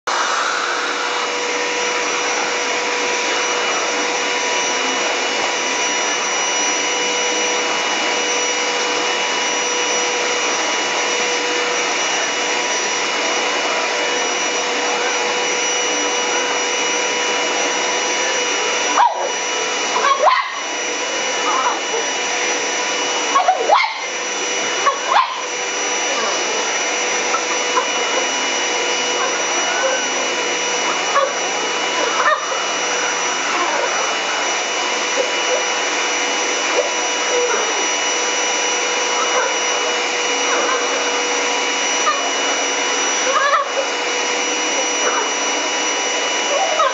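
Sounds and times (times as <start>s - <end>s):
vacuum cleaner running: 0.0s - 46.9s.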